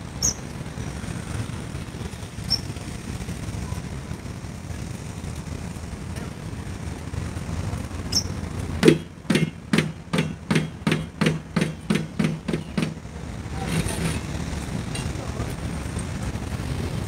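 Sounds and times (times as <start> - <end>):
sharp knocks: 8.8 - 13.0.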